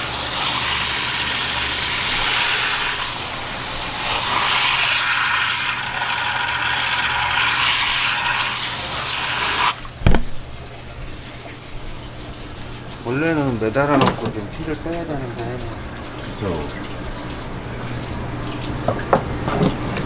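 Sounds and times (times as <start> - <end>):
thump: 10.0 - 10.3.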